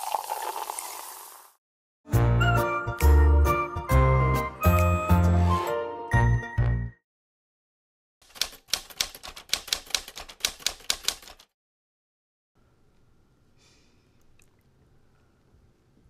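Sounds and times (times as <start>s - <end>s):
typewriter keys clacking: 8.2s - 11.5s.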